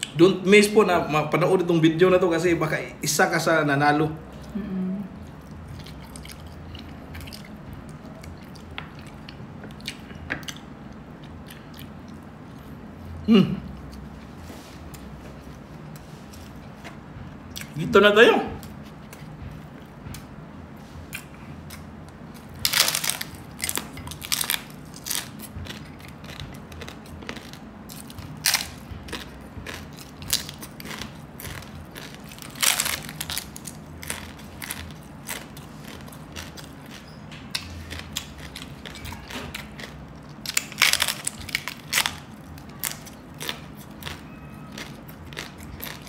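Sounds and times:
crunchy pork skin chewing: 0:05.3 - 0:13.0, 0:21.0 - 0:46.0.

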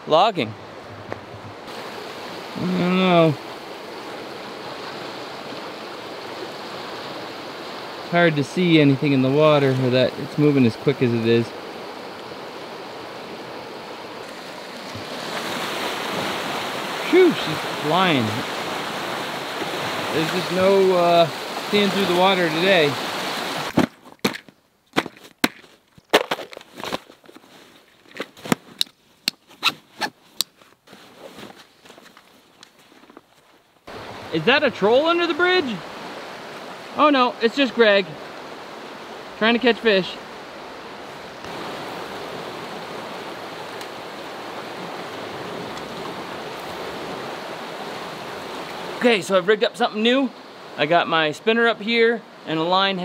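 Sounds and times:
river rushing over rocks: 0:01.6 - 0:23.7, 0:33.9 - 0:51.3.

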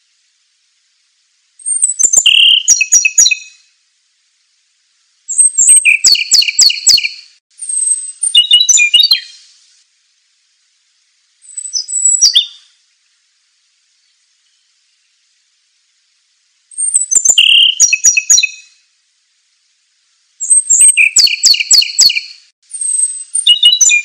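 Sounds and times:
songbird singing: 0:01.6 - 0:03.8, 0:05.3 - 0:09.6, 0:10.9 - 0:19.0, 0:20.4 - 0:24.0.

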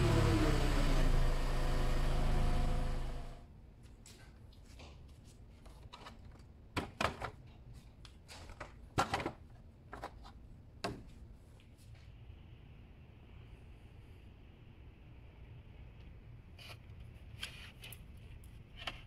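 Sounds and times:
car engine running: 0:00.0 - 0:03.4.

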